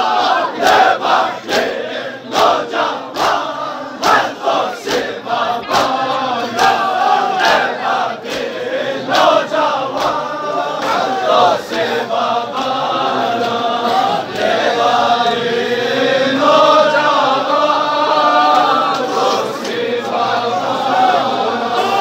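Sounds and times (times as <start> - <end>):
men chanting: 0.0 - 22.0
hands slapping chests: 4.0 - 6.8, 9.1 - 10.2.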